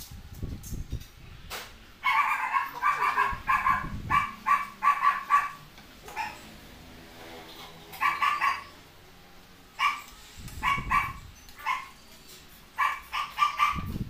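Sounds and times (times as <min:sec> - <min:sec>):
dog barking: 0:02.0 - 0:06.4, 0:08.0 - 0:08.7, 0:09.8 - 0:11.9, 0:12.8 - 0:13.9.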